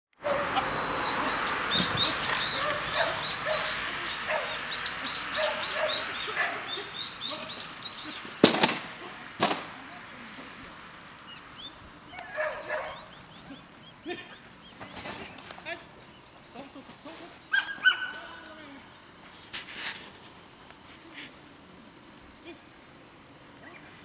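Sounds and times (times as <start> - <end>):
small dog barking: 2.4 - 4.6, 5.3 - 6.7, 12.1 - 13.1, 17.5 - 18.4.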